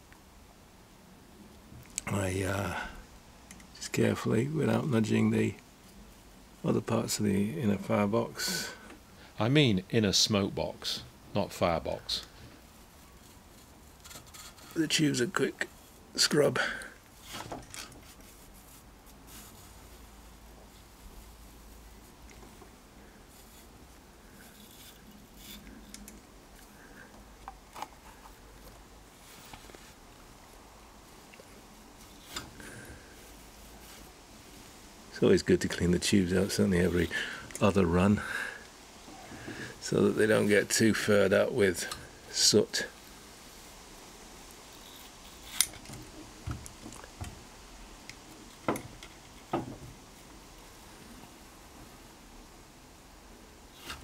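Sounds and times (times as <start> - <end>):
metallic clicks and scrapes: 13.2 - 14.8, 24.4 - 26.7, 44.8 - 46.1
wire brush scrubbing metal tubes: 23.3 - 26.1.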